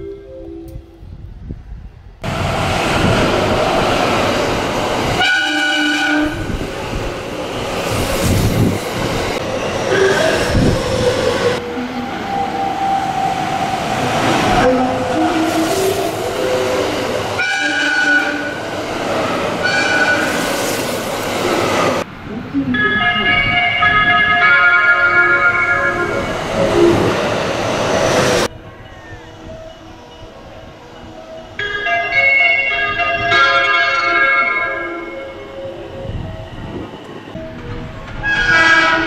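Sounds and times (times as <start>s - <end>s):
train rail noise: 0.5s - 39.0s
electronic horn melody: 5.2s - 6.5s, 14.6s - 18.6s, 23.3s - 26.3s, 38.2s - 39.0s
train air horn blasts: 5.2s - 6.5s, 14.6s - 18.6s, 19.6s - 20.5s, 38.2s - 39.0s.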